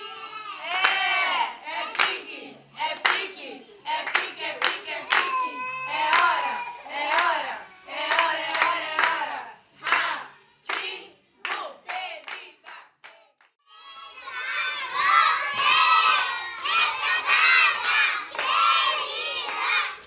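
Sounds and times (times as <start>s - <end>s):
children shouting and cheering: 0.0s - 2.2s, 4.6s - 8.9s, 13.6s - 20.0s.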